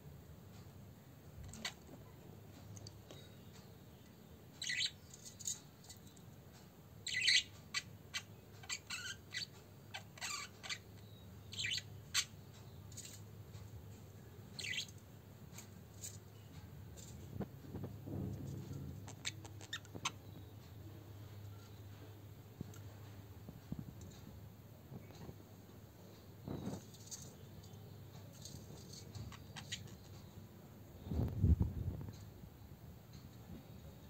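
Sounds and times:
budgerigar chirping: 0:04.6 - 0:05.0, 0:07.0 - 0:12.4, 0:14.6 - 0:14.9, 0:29.3 - 0:30.0.

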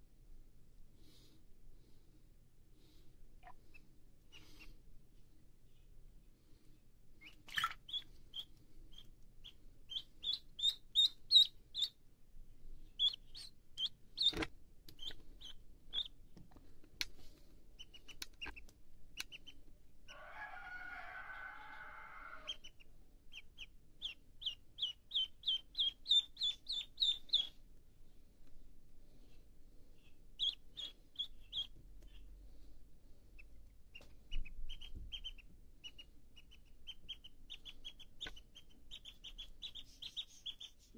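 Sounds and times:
duckling peeping: 0:03.4 - 0:04.8, 0:07.2 - 0:12.0, 0:12.8 - 0:16.4, 0:17.7 - 0:27.6, 0:29.9 - 0:32.6, 0:33.2 - 0:40.9.

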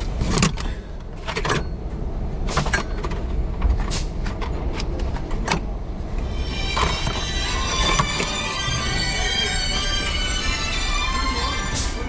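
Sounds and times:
steady low rumble: 0:03.1 - 0:12.0.

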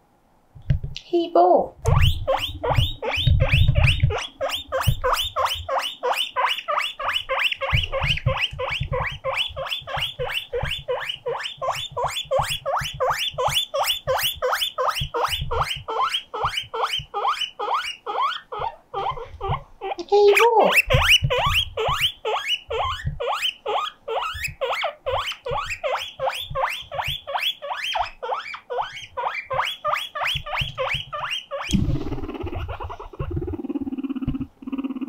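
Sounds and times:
guinea pig wheeking: 0:01.4 - 0:35.0.

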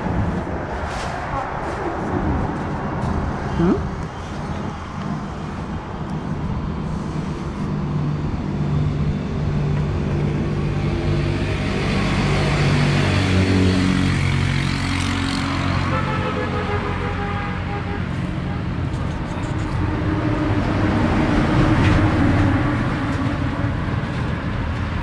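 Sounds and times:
vehicle engine passing: 0:10.3 - 0:15.9.

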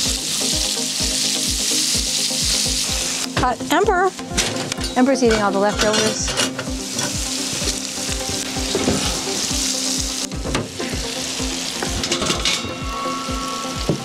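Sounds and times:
vegetables sizzling in a pan: 0:00.0 - 0:14.0.

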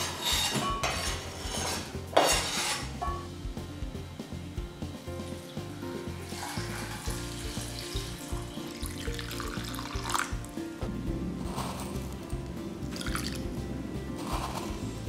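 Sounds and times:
background music: 0:00.0 - 0:15.0
water pouring into a pot: 0:06.3 - 0:10.4, 0:12.9 - 0:13.4.

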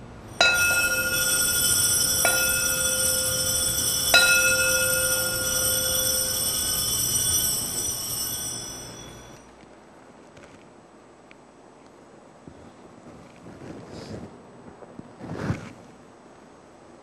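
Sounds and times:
bell ringing: 0:00.3 - 0:09.5.

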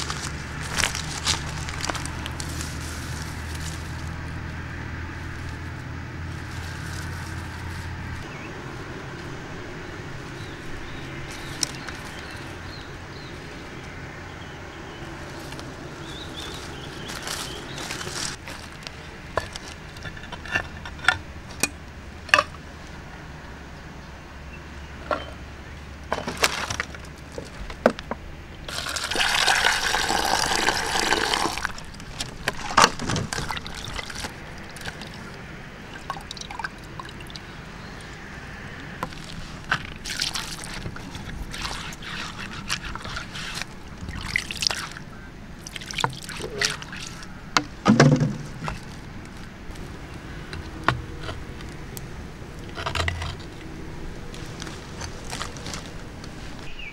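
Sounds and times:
scrubbing stone by hand: 0:00.0 - 0:04.6, 0:28.7 - 0:35.4, 0:39.0 - 0:56.7
water pouring and splashing: 0:28.7 - 0:37.5, 0:39.0 - 0:49.9
water trickling onto stone: 0:28.7 - 0:37.5, 0:39.0 - 0:47.3.

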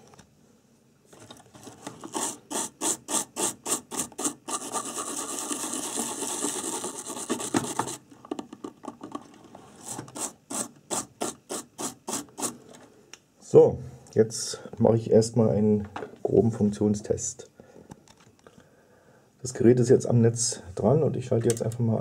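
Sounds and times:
brush scrubbing circuit board: 0:02.0 - 0:08.0, 0:09.8 - 0:12.6.

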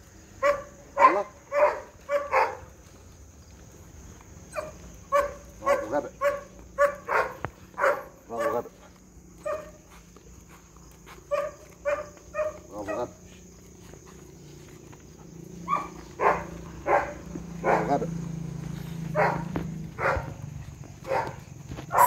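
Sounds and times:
dog barking: 0:00.4 - 0:02.7, 0:04.5 - 0:09.9, 0:11.2 - 0:13.3, 0:15.5 - 0:18.2, 0:19.0 - 0:20.4, 0:21.0 - 0:22.0.

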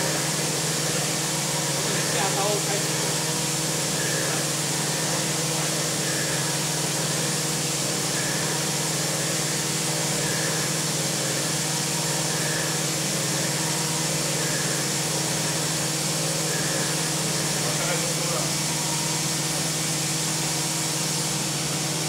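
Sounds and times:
milling machine hum and hiss: 0:00.0 - 0:22.0.

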